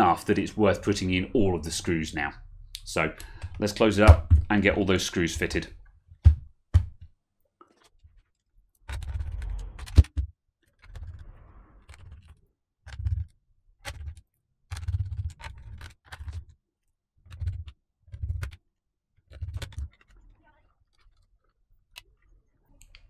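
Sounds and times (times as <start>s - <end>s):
plastic case knocks and clicks: 3.4s - 4.7s, 6.1s - 7.1s.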